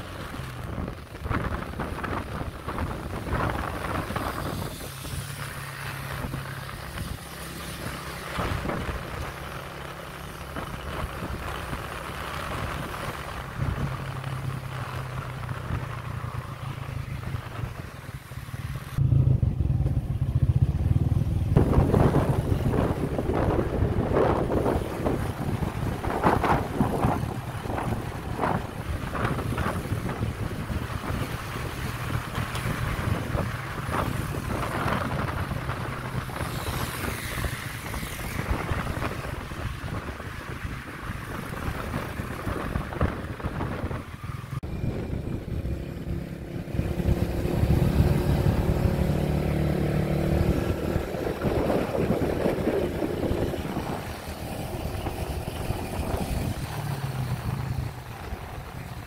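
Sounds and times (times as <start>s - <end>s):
motorcycle engine: 0.0s - 59.0s
wind buffeting microphone: 0.0s - 59.0s.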